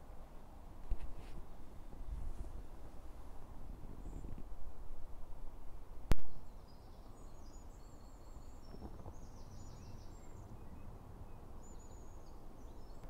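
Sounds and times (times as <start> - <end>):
songbirds chirping and trilling: 6.3 - 13.0.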